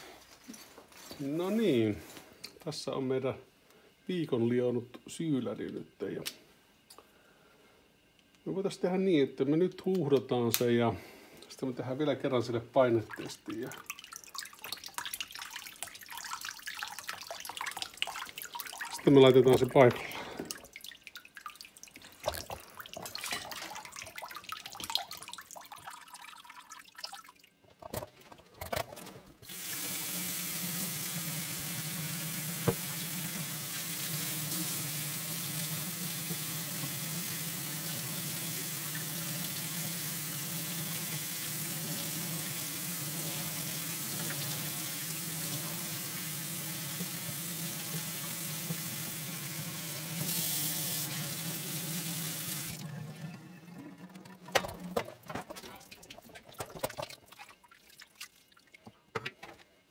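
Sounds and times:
water splashing and dripping: 0:13.1 - 0:27.6, 0:55.8 - 0:59.0.

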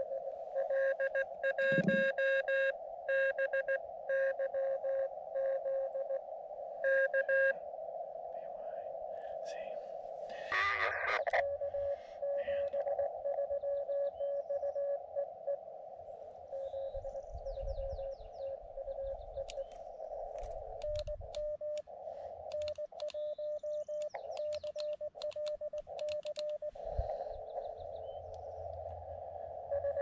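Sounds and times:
morse code tone: 0:00.0 - 0:06.0, 0:29.7 - 0:30.0
receiver hiss: 0:00.0 - 0:30.0
sharp clicks: 0:19.4 - 0:26.7.

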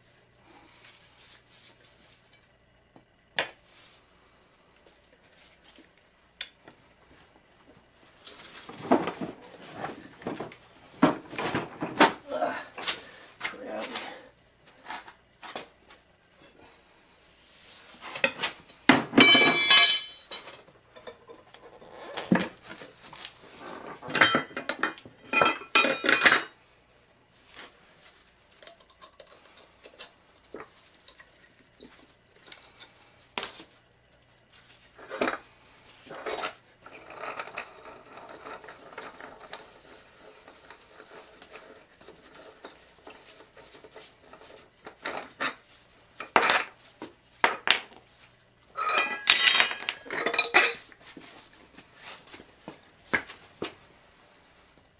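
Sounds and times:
steel clanking and scraping: 0:48.8 - 0:50.8.

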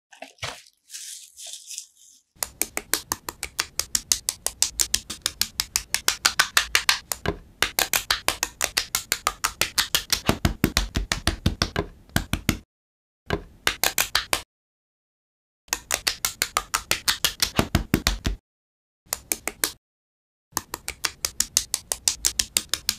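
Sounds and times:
soft rustle: 0:00.2 - 0:02.4.

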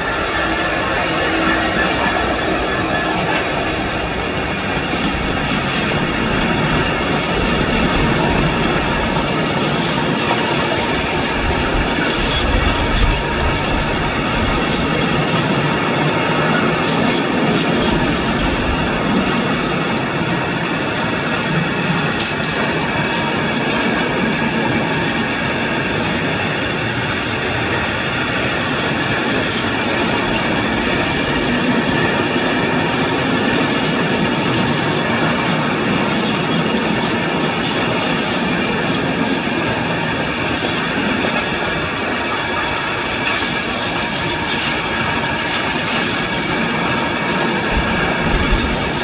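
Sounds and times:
freight train rumbling past: 0:00.0 - 0:49.0
high ringing rail tones: 0:00.0 - 0:49.0.

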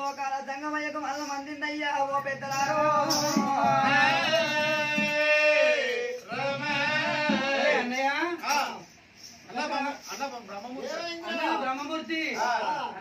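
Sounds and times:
man singing: 0:00.6 - 0:08.0.

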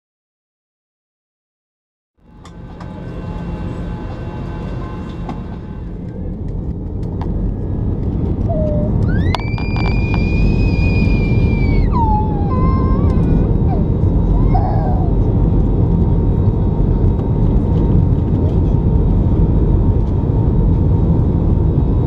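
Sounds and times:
airliner engines rumbling: 0:02.2 - 0:22.0
high whine: 0:02.2 - 0:22.0.

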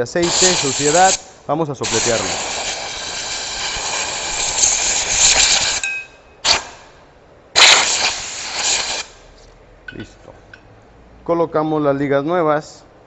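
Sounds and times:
air blow gun hissing: 0:00.0 - 0:07.0, 0:07.6 - 0:09.3.

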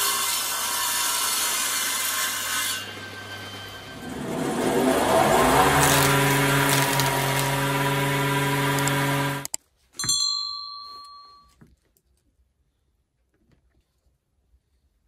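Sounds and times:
jointer planing wood: 0:00.0 - 0:09.5.

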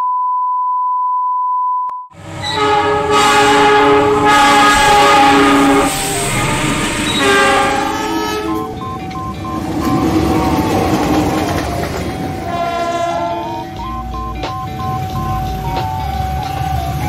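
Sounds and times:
passing train rumble: 0:02.2 - 0:17.0
locomotive horn blasts: 0:02.4 - 0:08.8, 0:12.3 - 0:13.8
test tone beep: 0:08.1 - 0:11.1, 0:13.4 - 0:16.6.

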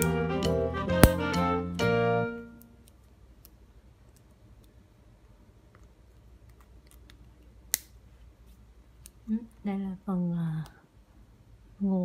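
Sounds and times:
sharp plastic snap: 0:01.0 - 0:01.2, 0:06.9 - 0:08.0.

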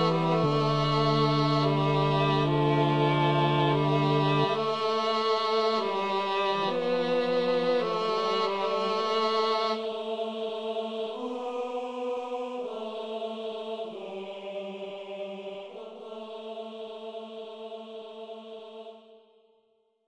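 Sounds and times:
slow music of held notes: 0:00.0 - 0:09.8.

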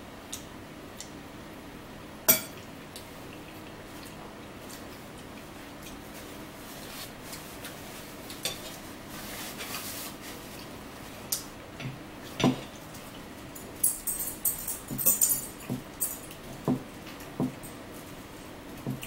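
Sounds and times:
cutlery clinking on plates: 0:13.8 - 0:16.4.

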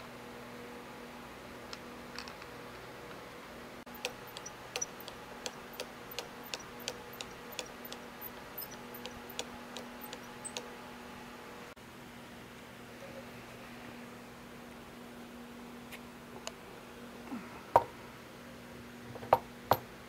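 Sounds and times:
steady low hum: 0:03.4 - 0:11.8
sharp metallic clicks: 0:03.9 - 0:10.7.

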